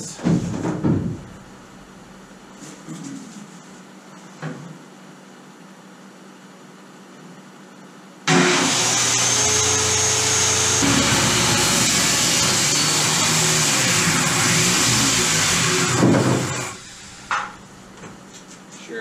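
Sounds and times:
circular saw cutting wood: 8.3 - 17.6.

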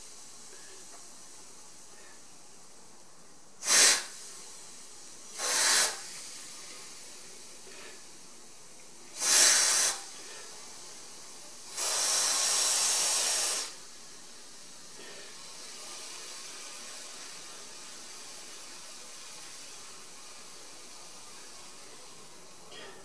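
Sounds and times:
aerosol spray hissing: 3.6 - 7.2, 9.1 - 13.9.

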